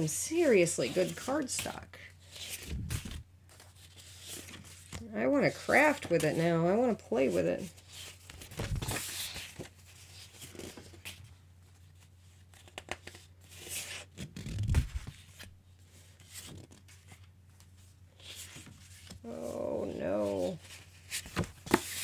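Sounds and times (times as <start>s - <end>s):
cardstock sliding and rustling: 2.3s - 5.0s, 20.2s - 22.0s.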